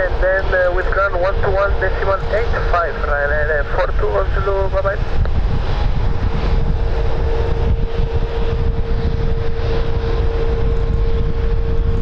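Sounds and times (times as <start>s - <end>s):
jet engines idling: 0.0s - 12.0s
wind buffeting microphone: 0.0s - 12.0s.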